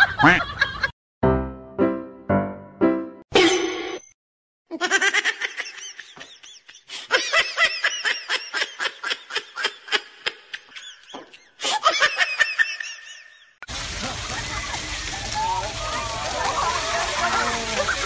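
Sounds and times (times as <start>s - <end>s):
person laughing hard: 0.0s - 0.9s, 4.7s - 13.4s.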